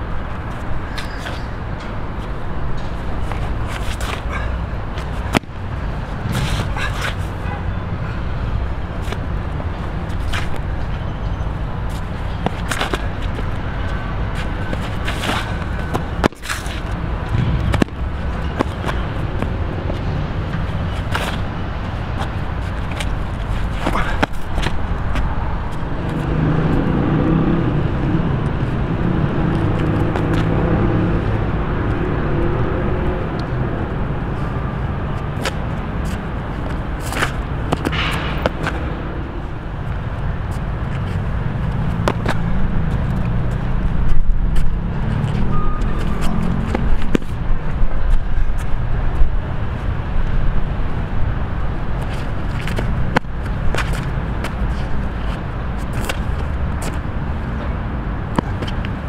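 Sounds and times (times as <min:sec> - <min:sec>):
city traffic rumble: 0:00.0 - 0:59.0
shoes stepping on stone paving: 0:11.9 - 0:26.2, 0:52.0 - 0:57.0.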